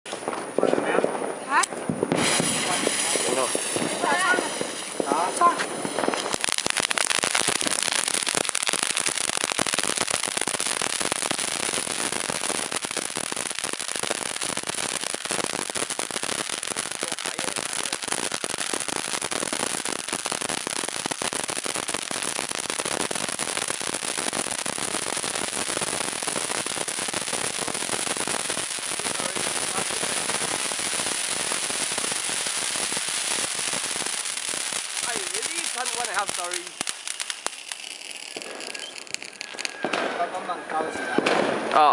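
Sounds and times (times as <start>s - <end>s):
fast crackling of sparks: 0.1s - 40.2s
firework fountain spraying sparks: 0.1s - 41.9s.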